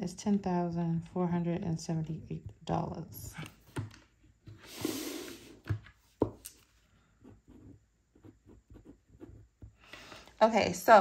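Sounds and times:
pen writing on paper: 7.2s - 9.7s.

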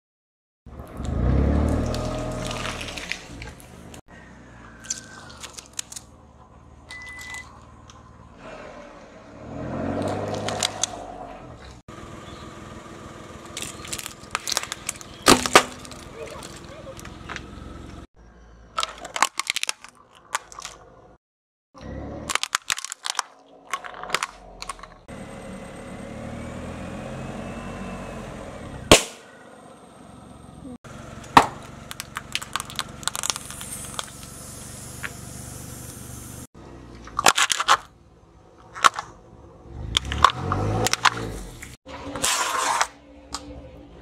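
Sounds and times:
car tyre crunching objects: 0.7s - 18.1s, 18.7s - 21.2s, 22.1s - 28.2s, 28.8s - 43.4s.

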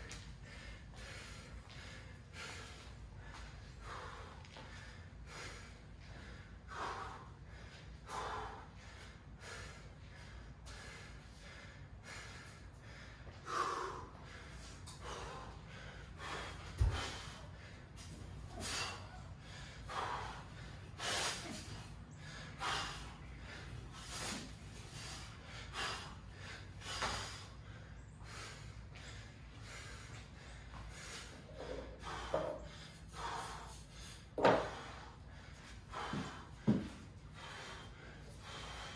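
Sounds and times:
man breathing hard: 0.0s - 38.9s.

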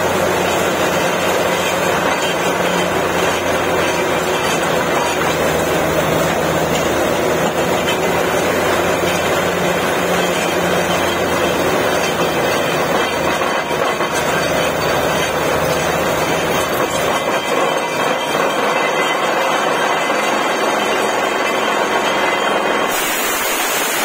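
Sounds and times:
drilling rig running: 0.0s - 24.0s
air compressor: 22.3s - 24.0s
air blowing out muddy water: 22.9s - 24.0s.

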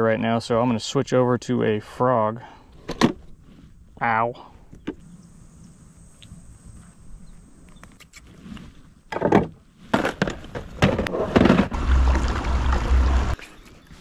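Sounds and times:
loud low rumble: 11.7s - 13.4s.

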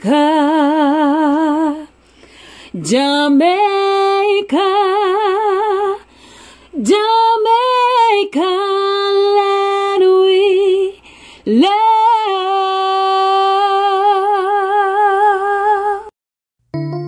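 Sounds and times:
music: 16.7s - 17.0s.

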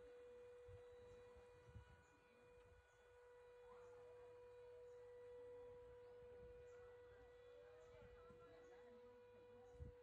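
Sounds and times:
faint steady tone: 0.0s - 10.0s.

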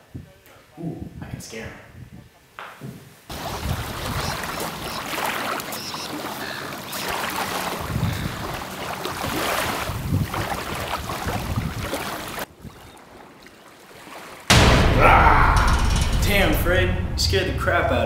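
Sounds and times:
wind buffeting microphone: 0.1s - 2.3s, 3.3s - 5.1s, 7.4s - 13.0s
waves lapping on sandy shore: 3.3s - 14.5s.

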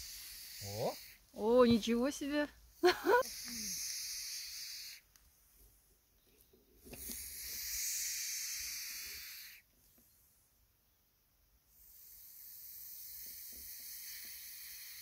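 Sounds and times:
snake hissing: 0.0s - 1.3s, 3.0s - 5.1s, 6.9s - 9.7s, 11.7s - 15.0s.

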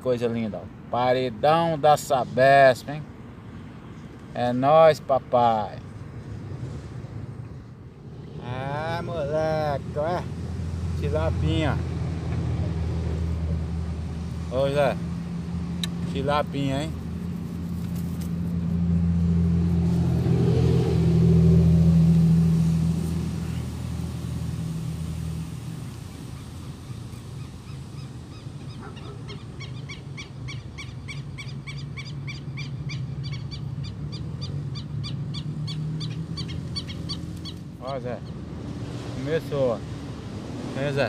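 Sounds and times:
passing engine hum: 0.0s - 41.0s
animal chirping: 27.4s - 38.4s.

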